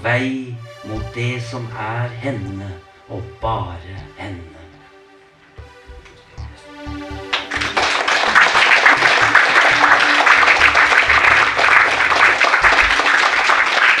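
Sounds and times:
background music with pulsing bass: 0.0s - 13.8s
audience applause: 7.2s - 14.0s.

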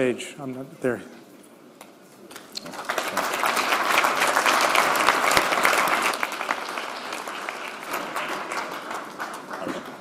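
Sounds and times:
audience applauding: 2.4s - 10.0s.

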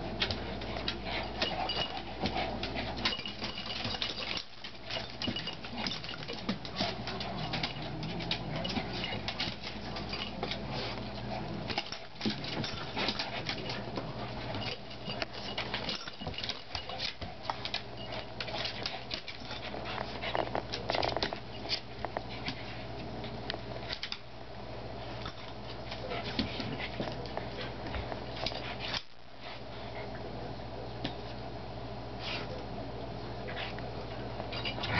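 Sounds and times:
dogs growling: 5.6s - 12.0s.

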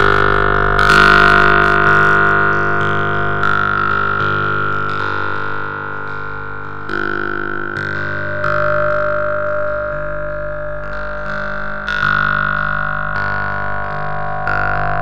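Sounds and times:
synthetic plucked string notes: 0.0s - 4.3s.

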